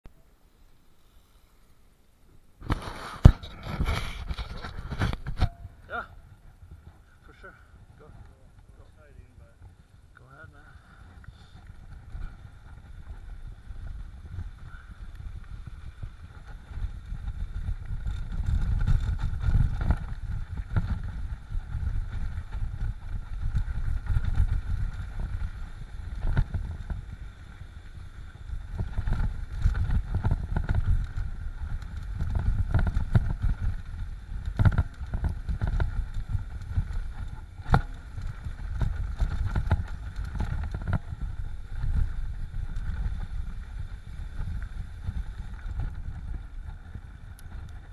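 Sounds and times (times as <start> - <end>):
wind rumble on microphone: 2.6 - 47.9
bike rattling and knocking: 11.4 - 47.9.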